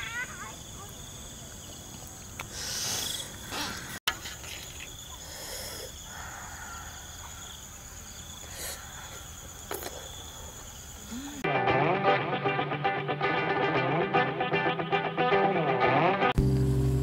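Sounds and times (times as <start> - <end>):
insects chirring: 0.0 - 11.5.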